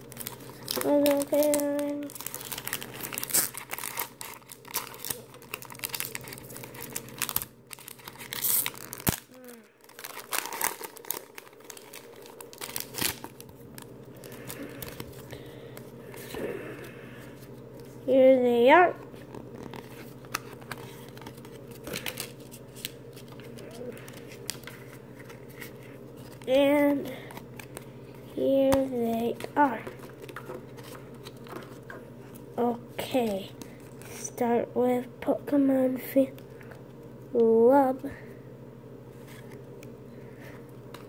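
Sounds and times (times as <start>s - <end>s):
foil wrapper crinkling: 0.0s - 16.4s, 19.1s - 26.6s
steady low hum: 0.0s - 41.0s.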